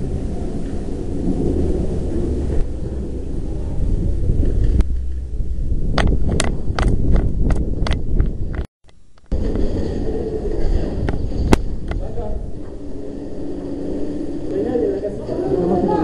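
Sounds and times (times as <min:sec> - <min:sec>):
wind on microphone: 0:00.0 - 0:16.0
camera handling rumble: 0:05.9 - 0:09.4.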